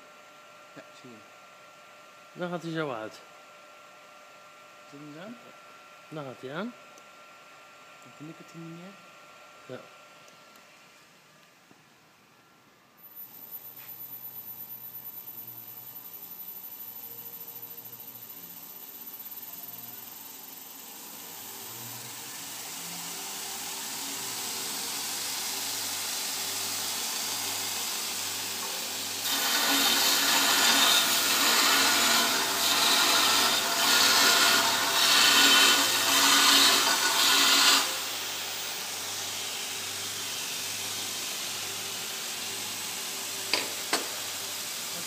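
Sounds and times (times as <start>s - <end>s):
belt grinder running: 21.6s - 44.8s
metal bar grinding on belt: 29.2s - 38.0s.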